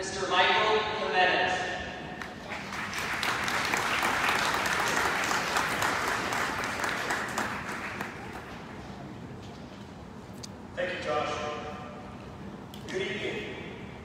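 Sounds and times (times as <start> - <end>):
crowd applauding: 2.2 - 8.9.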